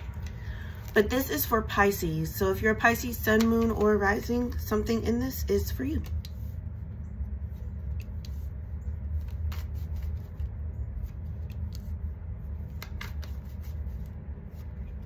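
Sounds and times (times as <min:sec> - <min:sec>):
low background rumble: 0:00.0 - 0:15.0
cards being shuffled: 0:09.1 - 0:12.0, 0:12.6 - 0:15.0.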